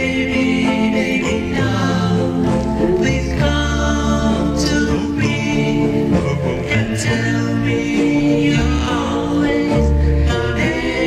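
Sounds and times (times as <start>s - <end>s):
backing band with bass: 0.0s - 11.0s
vocal group singing harmonies: 0.0s - 11.0s.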